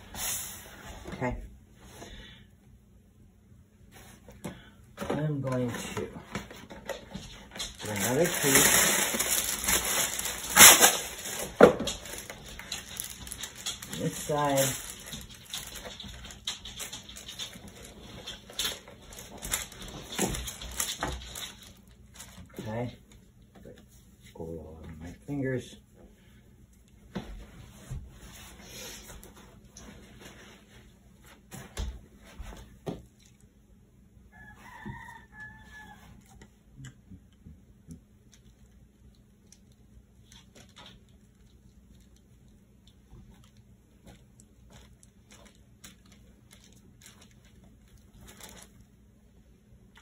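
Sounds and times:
wax paper crinkling: 5.5 - 22.7, 38.2 - 49.4.

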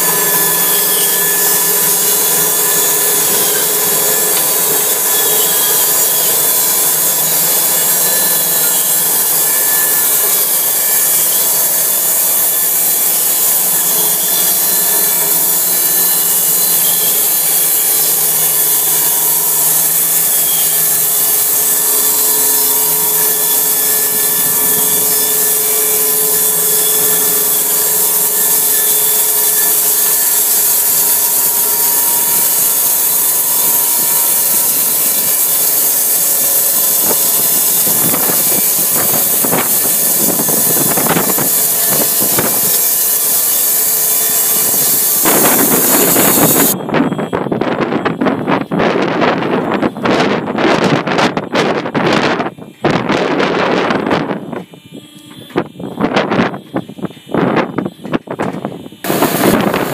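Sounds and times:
bandsaw cutting through log: 0.0 - 46.8, 59.0 - 59.9.

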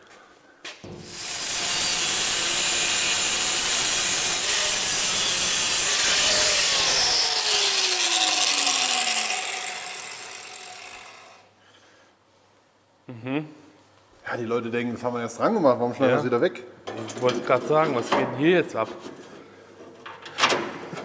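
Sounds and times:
power tool cutting sheet metal: 1.0 - 11.5
motor winding down whine: 6.3 - 11.5.

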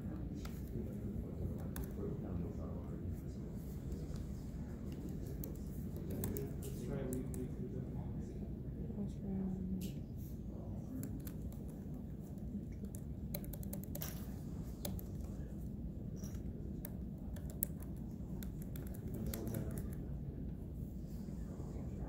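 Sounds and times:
low background hum: 0.0 - 22.0
keyboard typing: 4.9 - 7.4, 12.7 - 15.5, 16.2 - 20.1.

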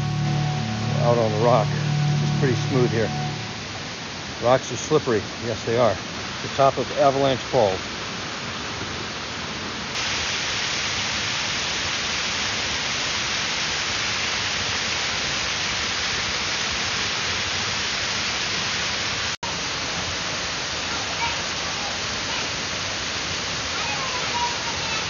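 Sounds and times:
waterfall rushing over rock: 0.0 - 25.0.

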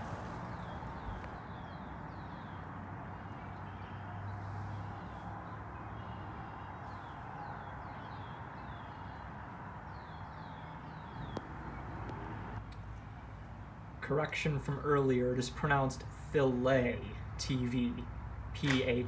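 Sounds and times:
bird chirping: 0.0 - 12.6
low outdoor hum: 0.0 - 19.0.

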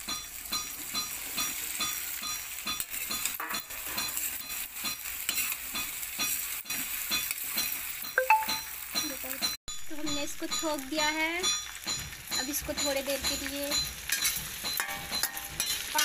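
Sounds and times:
vegetables sizzling in hot oil: 0.0 - 16.0
metal spatula scraping pan: 0.6 - 7.8, 13.0 - 16.0.

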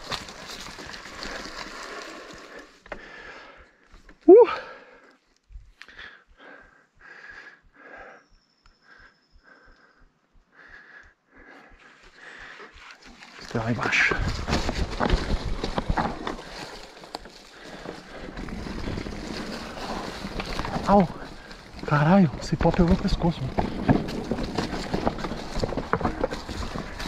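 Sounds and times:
bike tyres rattling over dirt: 0.0 - 4.2, 12.2 - 27.0
heavy breathing: 1.2 - 13.4, 16.2 - 21.9.

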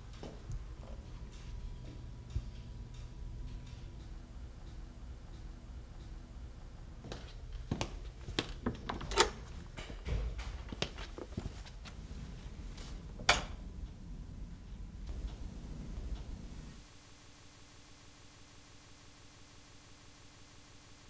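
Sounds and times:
steady low hum: 0.0 - 21.0
footsteps on hard floor: 0.1 - 2.5, 7.0 - 13.0
heavy door opening and shutting: 8.5 - 10.8.

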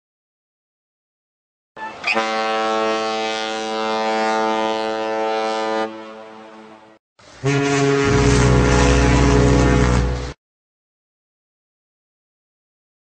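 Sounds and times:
boat horn blast: 1.8 - 10.4.

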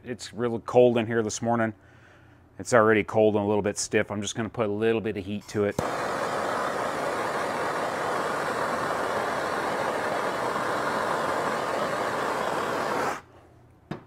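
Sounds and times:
gas torch hissing flame: 5.8 - 13.3.

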